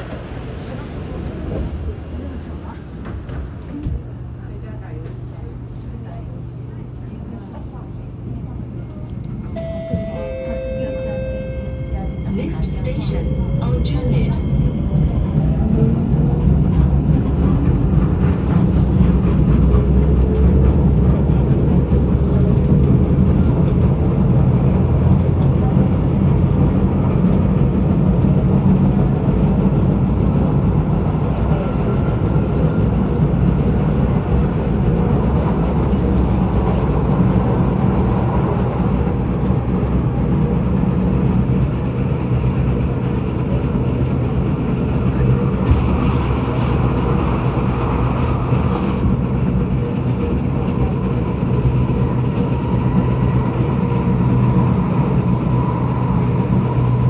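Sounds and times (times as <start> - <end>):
train rumble: 0.0 - 57.0
train wheels pounding on track: 13.3 - 57.0.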